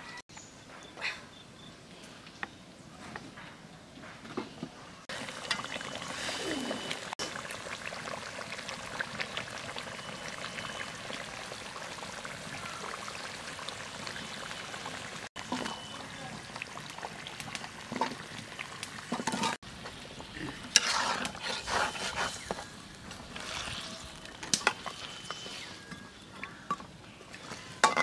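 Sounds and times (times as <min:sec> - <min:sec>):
gravy bubbling and spluttering: 0:05.1 - 0:25.1.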